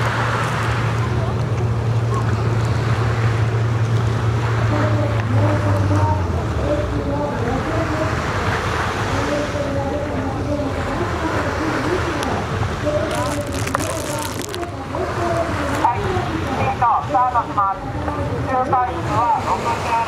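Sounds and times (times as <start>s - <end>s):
low engine hum: 0.0s - 20.0s
sea waves: 0.0s - 20.0s
wind: 0.0s - 20.0s.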